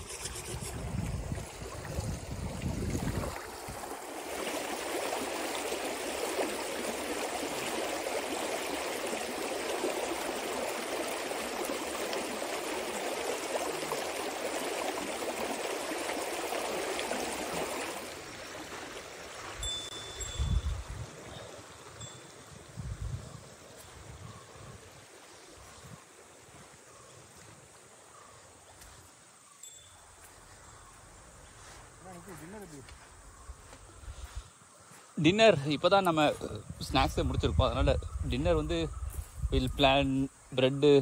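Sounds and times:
stream rushing over stones: 0.0 - 20.4.

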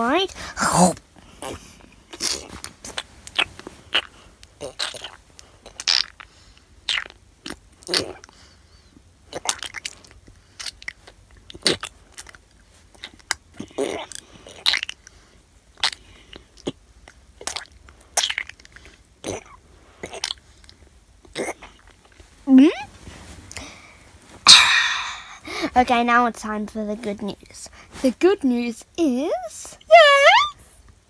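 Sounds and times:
person chewing: 9.3 - 15.2, 15.8 - 22.2.

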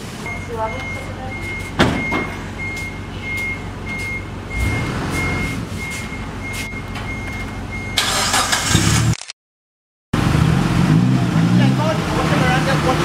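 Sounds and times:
high electronic warning beeps: 0.2 - 8.0.

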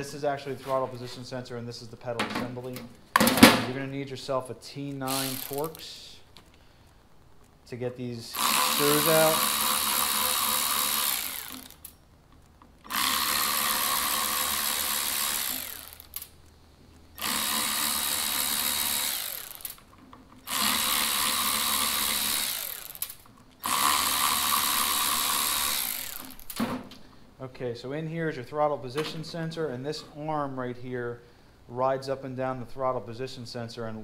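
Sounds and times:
cordless power tool whirring: 5.1 - 5.8, 8.3 - 11.9, 12.8 - 16.3, 17.2 - 26.6.

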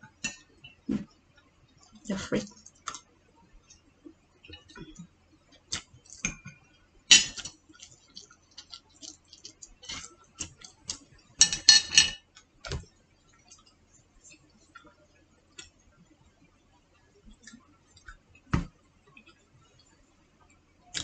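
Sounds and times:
utensils clinking on plates: 11.4 - 12.2.

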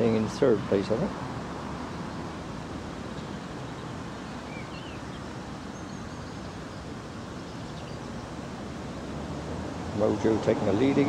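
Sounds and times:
faint bird chirps: 3.1 - 8.4.

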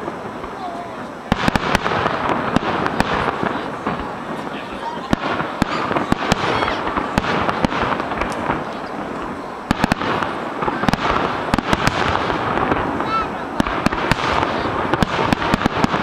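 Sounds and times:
firework shells bursting: 0.0 - 16.0.

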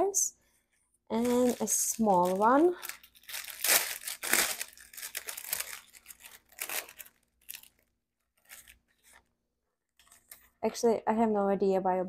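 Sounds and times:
plastic bag crinkling: 1.1 - 9.2
parchment paper rustling: 1.1 - 9.4.

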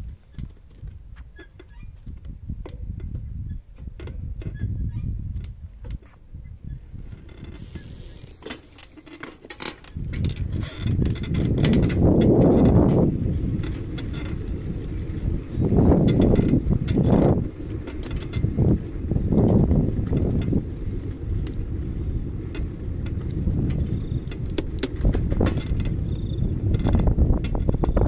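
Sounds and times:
wind buffeting microphone: 0.0 - 8.8, 9.8 - 28.0
light clicks and rattles: 7.1 - 21.7, 22.4 - 28.0.

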